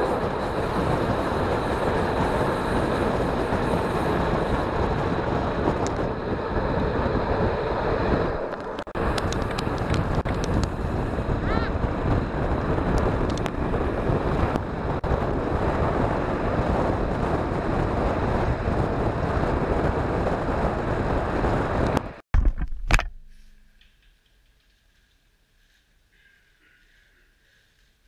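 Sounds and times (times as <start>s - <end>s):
train running at speed: 0.0s - 22.2s
wind rushing over microphone: 0.0s - 22.2s.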